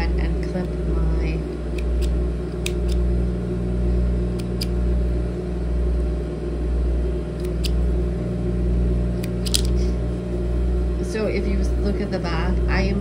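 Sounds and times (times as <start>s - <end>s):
thread snips clicking: 1.7s - 3.0s, 7.4s - 7.8s.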